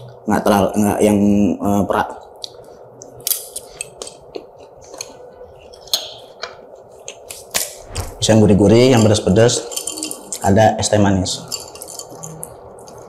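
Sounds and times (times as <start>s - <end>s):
chewing: 11.6s - 13.0s.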